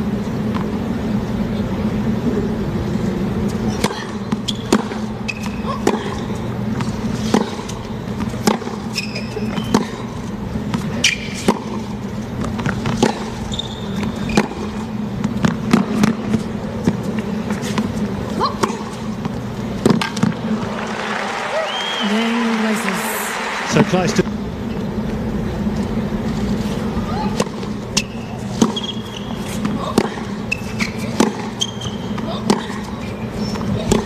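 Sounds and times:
stadium hum: 0.0 - 34.0
shoe squeaks on court: 4.3 - 5.8, 8.6 - 10.1, 10.9 - 11.5, 13.2 - 14.8, 28.0 - 29.6, 30.4 - 32.3.

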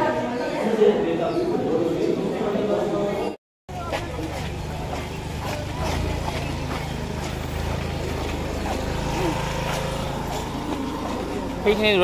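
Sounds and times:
faint voices: 0.0 - 12.0
vehicle engine rumbling: 3.7 - 12.0.

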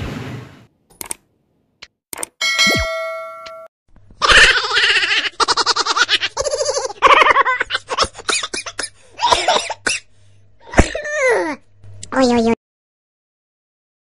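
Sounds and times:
high-pitched laughter: 4.2 - 9.5.

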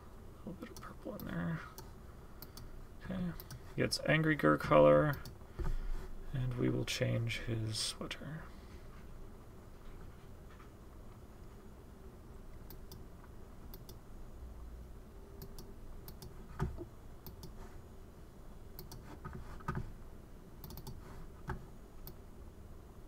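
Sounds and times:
computer mouse clicking: 0.7 - 2.7, 3.4 - 3.6, 12.6 - 13.0, 13.7 - 14.0, 15.4 - 17.6, 18.8 - 19.8, 20.6 - 22.2.

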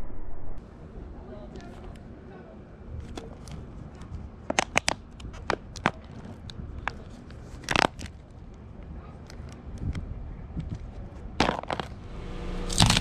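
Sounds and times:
low rumble: 0.0 - 0.6, 11.8 - 13.0
tyre crushing crunchy objects: 12.7 - 13.0.

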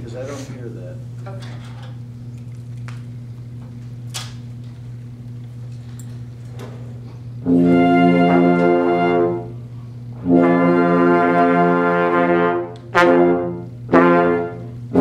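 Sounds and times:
steady low hum: 0.0 - 15.0
wind band playing held chord: 7.4 - 9.6, 10.2 - 15.0.

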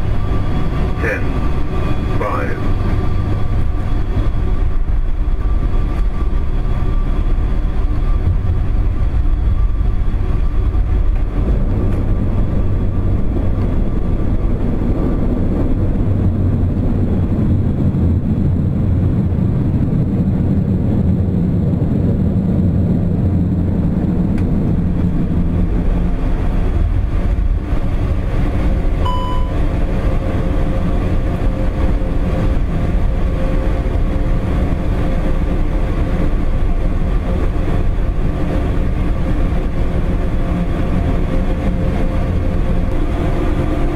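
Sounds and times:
aircraft engines rumbling on runway: 0.0 - 43.9
short electronic beep: 29.0 - 29.6.

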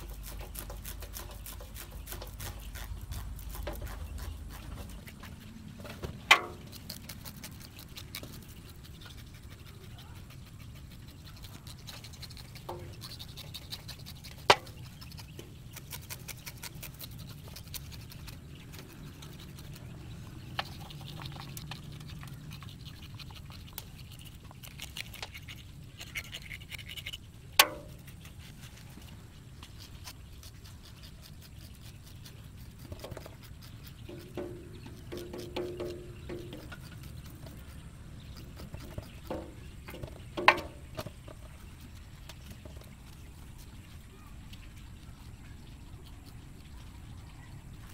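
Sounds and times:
hands scratching snake skin: 6.6 - 37.7.

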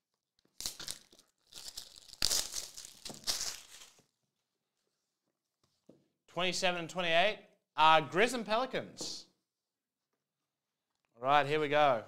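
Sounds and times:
plastic wrap crinkling and tearing: 0.2 - 4.2.

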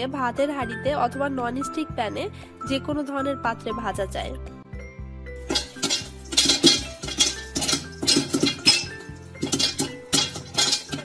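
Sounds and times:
popcorn clinking on metal lid: 5.4 - 11.0
popcorn popping: 5.4 - 11.0.

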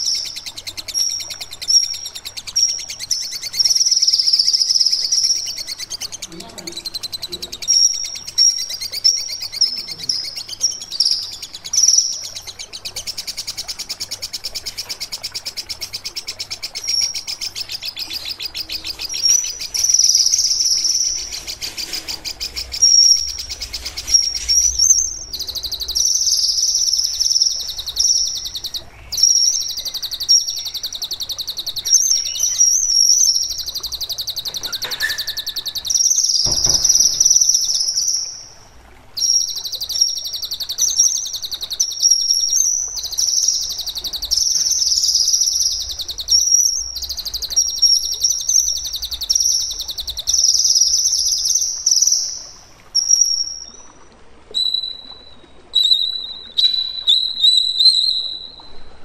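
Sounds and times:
songbird rattling trills: 0.0 - 38.5
short knock: 36.4 - 37.4.

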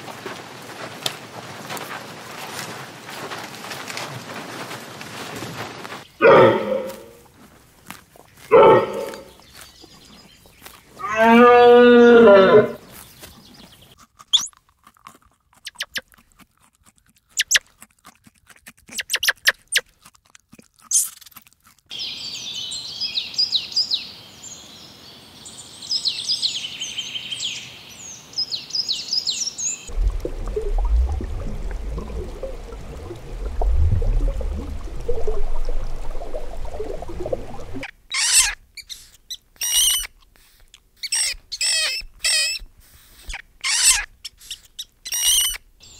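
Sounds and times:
animal grunting calls: 6.2 - 7.2, 8.3 - 9.4, 10.9 - 12.9
small birds chirping: 7.8 - 12.2, 12.8 - 14.6, 15.6 - 16.1, 21.9 - 45.9.

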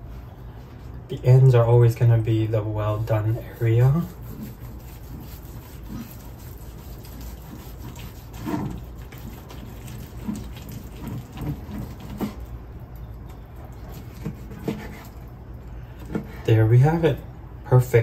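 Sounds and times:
knife sawing crusty meat: 3.3 - 12.4, 13.9 - 15.2.

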